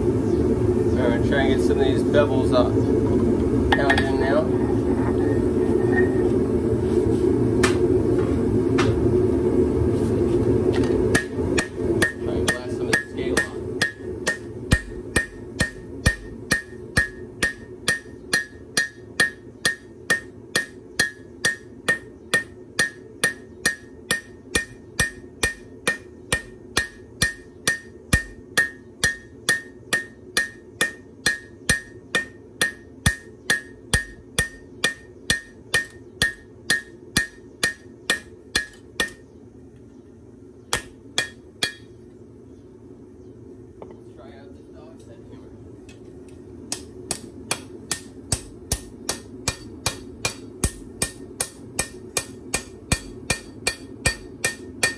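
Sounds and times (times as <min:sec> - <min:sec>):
hammer blows ringing on anvil: 0:11.1 - 0:39.2, 0:40.7 - 0:41.9, 0:46.7 - 0:54.9.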